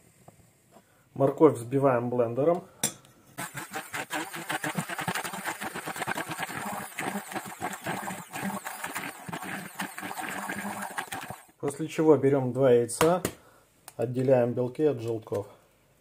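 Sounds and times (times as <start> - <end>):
immersion blender chopping: 3.4 - 11.5.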